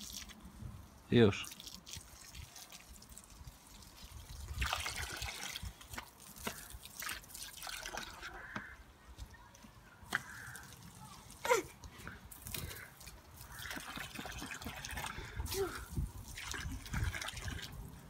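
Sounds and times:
hose water spraying onto grass: 0.0 - 8.3, 10.0 - 18.0.

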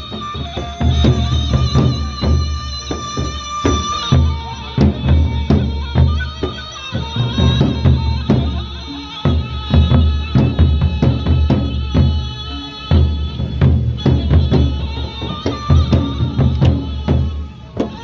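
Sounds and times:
barrel drums beaten with sticks: 0.0 - 18.0.

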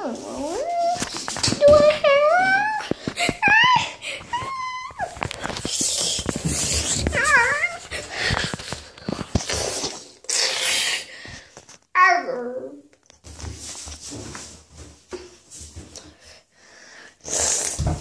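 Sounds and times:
girl whimpering and whining: 1.6 - 5.2
breathy rustling: 2.8 - 11.8.

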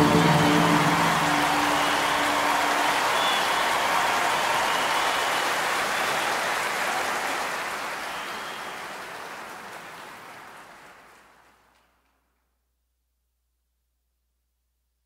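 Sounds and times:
high whistles: 0.0 - 6.4, 8.0 - 8.8
crowd applauding and cheering: 0.0 - 12.0.

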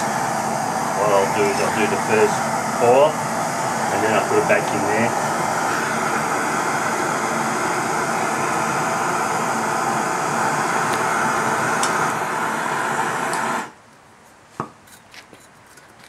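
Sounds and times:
gas torch hissing: 0.0 - 13.8.

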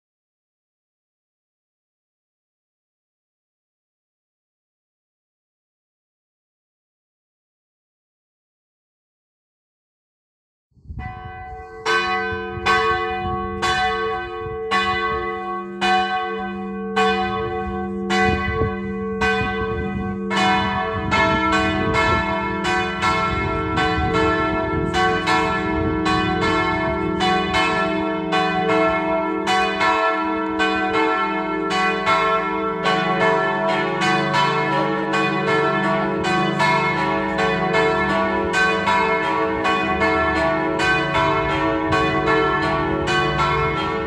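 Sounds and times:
church bells ringing: 11.0 - 44.0.

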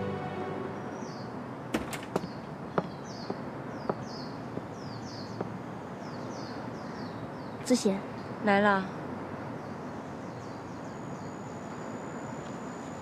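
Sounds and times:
hard-soled footsteps clicking: 1.8 - 4.8
small bird chirping: 2.1 - 8.3.

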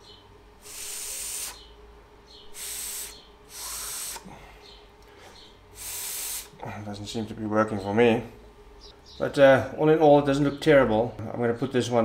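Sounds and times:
breath blown through reed: 0.6 - 1.6, 2.5 - 4.5, 5.8 - 6.6.

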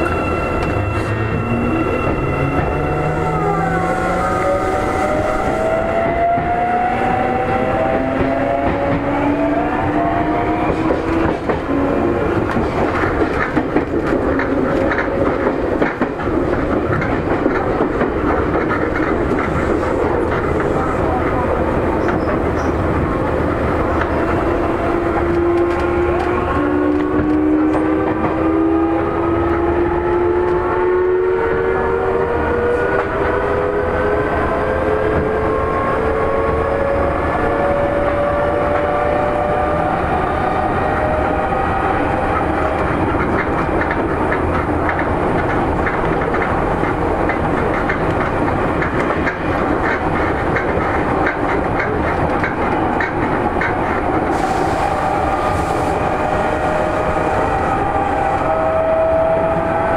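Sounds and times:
wheels clacking over rail joints: 10.6 - 23.1, 42.3 - 54.4.

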